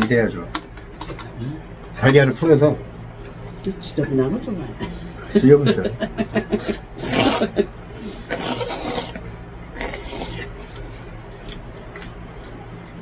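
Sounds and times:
person slurping noodles: 0:07.0 - 0:10.7.

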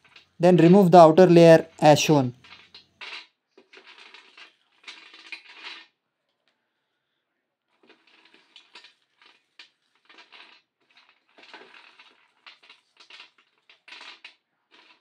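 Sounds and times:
peanuts rattling on metal tray: 0:02.4 - 0:05.9, 0:07.8 - 0:15.0.

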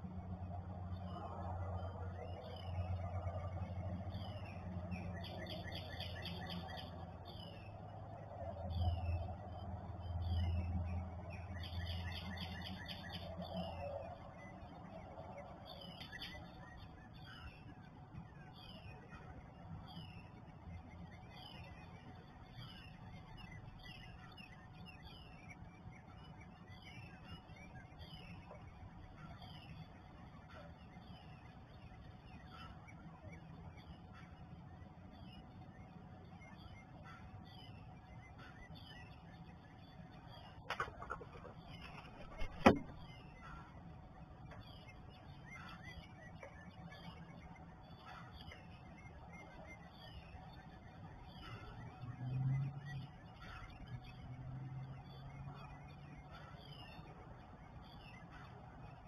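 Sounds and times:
songbirds singing: 0:00.0 - 0:59.0
steady low hum: 0:00.0 - 0:59.0.

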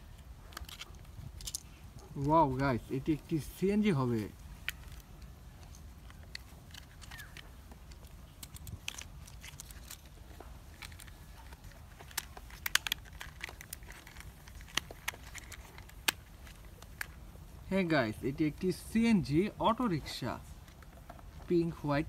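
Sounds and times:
plastic toy parts clicking: 0:00.5 - 0:01.7, 0:04.6 - 0:17.2.

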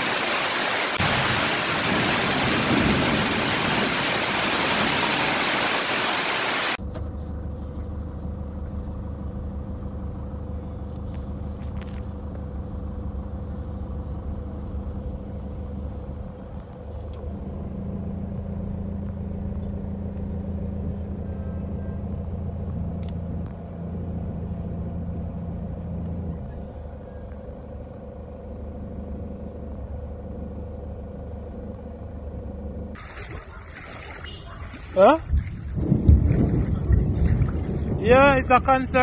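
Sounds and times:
car engine humming: 0:13.9 - 0:33.6.

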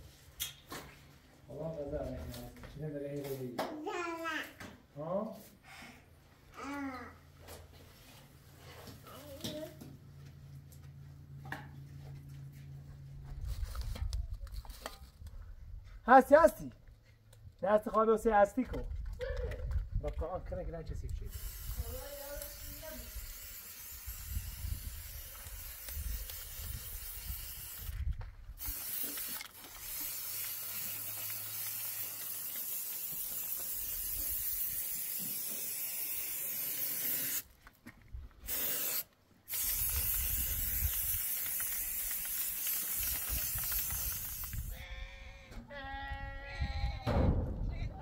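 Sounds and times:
spray paint hissing: 0:21.3 - 0:28.0, 0:28.6 - 0:37.5, 0:38.4 - 0:44.8
goat or sheep bleating: 0:44.7 - 0:47.1.

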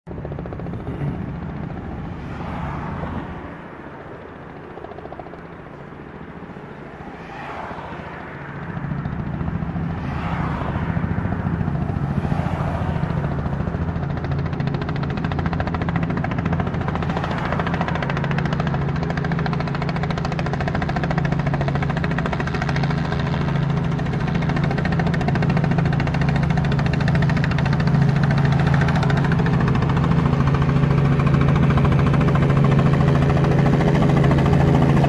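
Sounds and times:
helicopter rotor and engine: 0:00.1 - 0:35.0.

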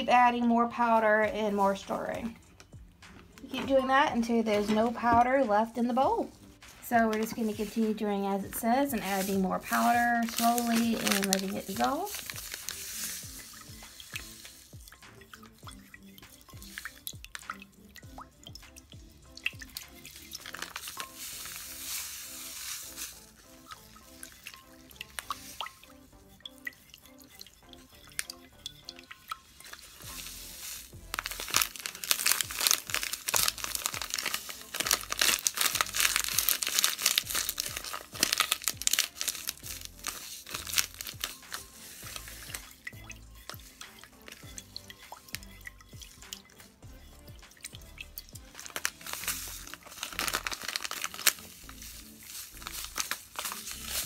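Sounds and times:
soft background music: 0:00.0 - 0:54.0
stir stick scraping in a bowl: 0:06.3 - 0:17.4, 0:26.7 - 0:35.3, 0:39.0 - 0:46.7
foil packet crinkling: 0:07.1 - 0:14.8, 0:19.7 - 0:25.7, 0:29.6 - 0:42.8, 0:48.5 - 0:54.0.

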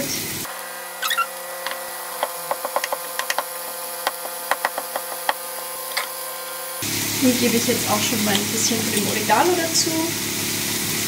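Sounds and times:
knife chopping on wooden board: 0:01.7 - 0:05.5.

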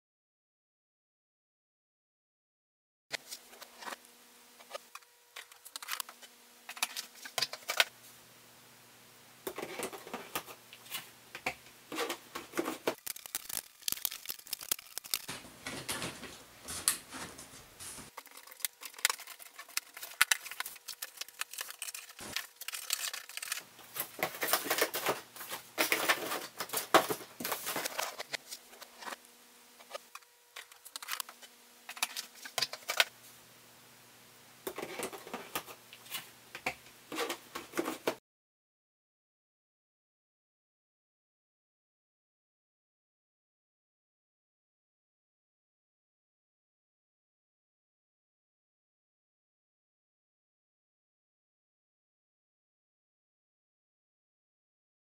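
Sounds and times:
plastic box parts rattling: 0:12.0 - 0:16.4, 0:18.1 - 0:28.3.

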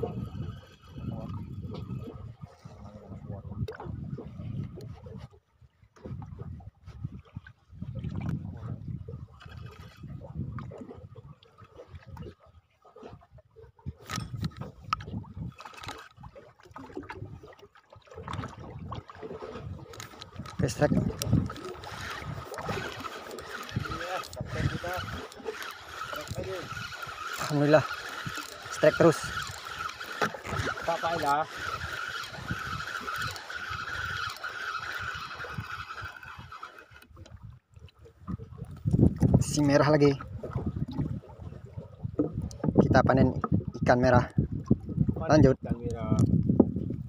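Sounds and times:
fishing reel whirring: 0:00.0 - 0:02.2, 0:14.1 - 0:16.3, 0:19.4 - 0:37.2
water lapping against boat hull: 0:00.0 - 0:47.0.

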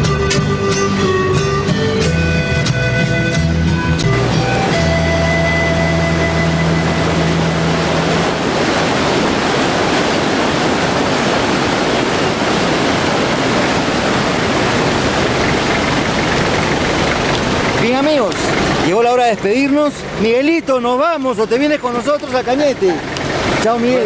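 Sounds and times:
held music chord: 0:00.0 - 0:08.4
loud rushing noise: 0:03.9 - 0:20.3.

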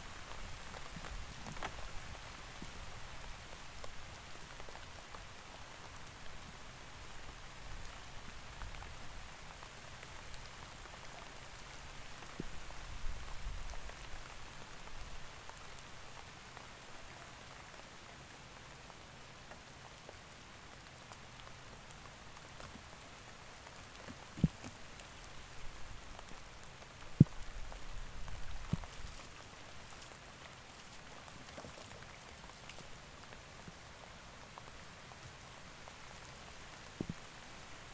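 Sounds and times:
rain pattering on water: 0:00.0 - 0:37.9
soft low thumps: 0:24.3 - 0:24.7.

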